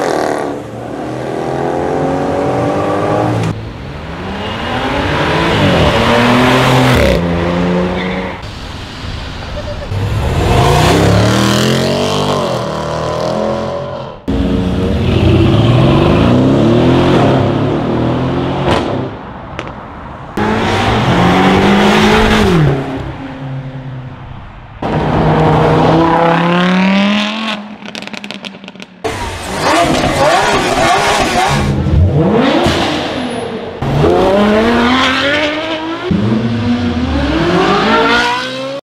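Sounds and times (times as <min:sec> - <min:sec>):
car engines revving and accelerating: 0:00.0 - 0:08.4, 0:09.4 - 0:38.8.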